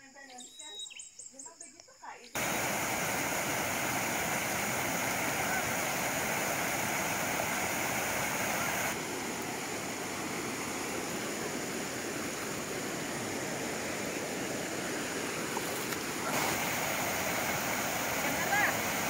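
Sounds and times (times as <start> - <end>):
flowing water rushing: 2.4 - 19.0.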